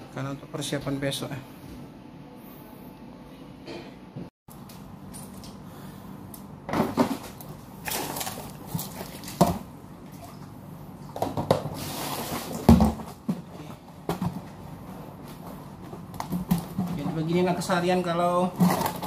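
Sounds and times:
water splashing: 7.8 - 10.5.

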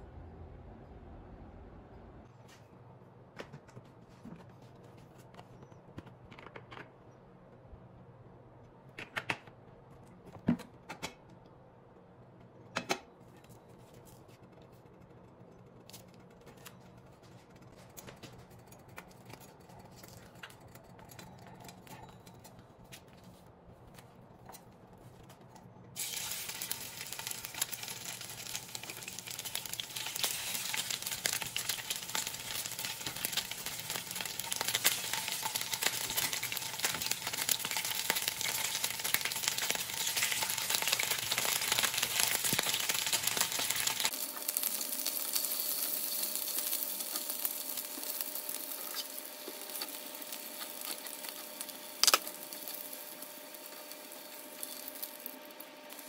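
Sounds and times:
patties sizzling in oil: 26.0 - 56.0.

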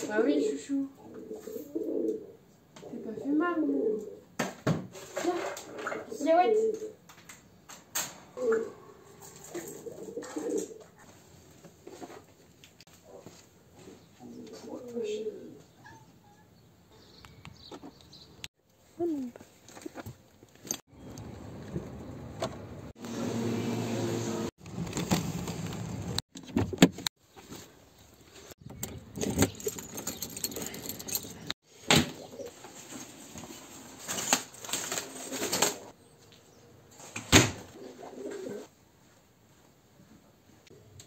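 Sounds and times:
key ring jangling: 29.2 - 31.5.

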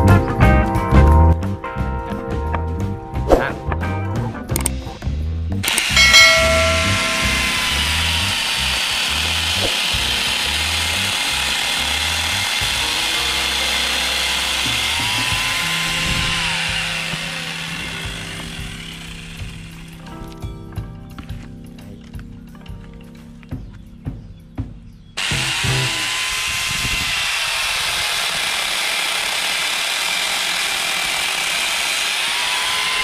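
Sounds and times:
chainsaw grinder cutting branch: 5.6 - 20.2, 25.2 - 33.0.

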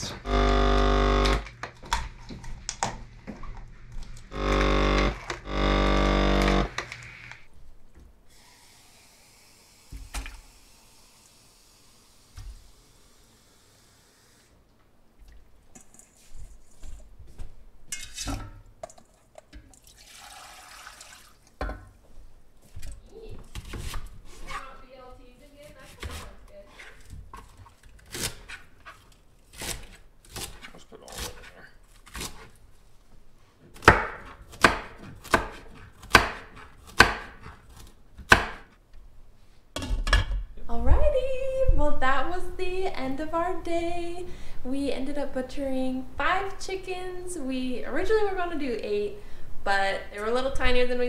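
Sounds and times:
running water: 19.7 - 21.6
knife chopping on cutting board: 33.8 - 37.6, 38.2 - 38.6.

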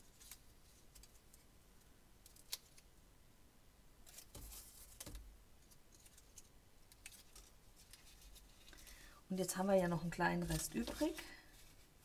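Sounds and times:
paper rustling and taps: 4.1 - 5.3.

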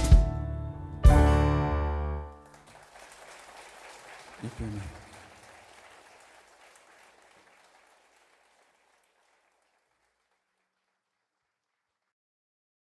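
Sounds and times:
audience applauding: 2.3 - 12.0.

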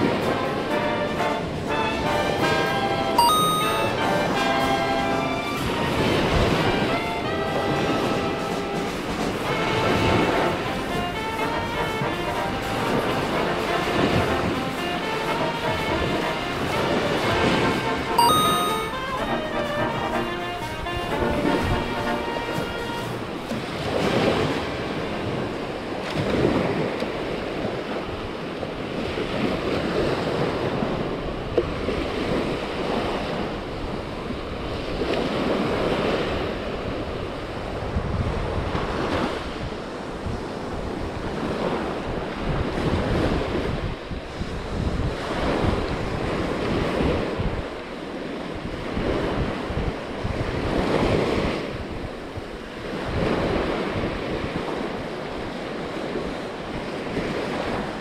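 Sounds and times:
surf waves breaking on beach: 0.0 - 58.0
wind buffeting microphone: 4.2 - 18.0, 20.6 - 58.0.

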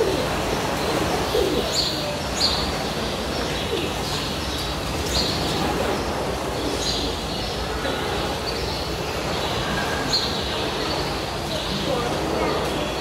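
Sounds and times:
bird cooing: 0.0 - 2.4, 3.5 - 4.3
birds chirping: 0.0 - 13.0.

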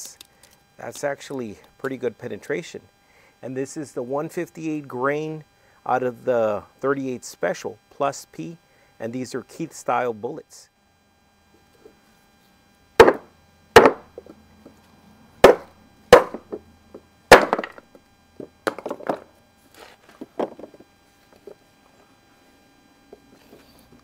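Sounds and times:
hatchet striking wood: 13.0 - 14.3, 15.4 - 16.6, 17.3 - 17.8.

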